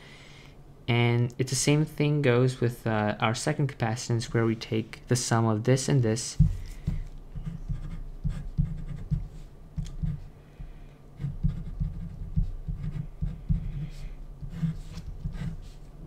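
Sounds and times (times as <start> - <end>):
pen scratching on paper: 7.4 - 10.3, 11.2 - 15.8.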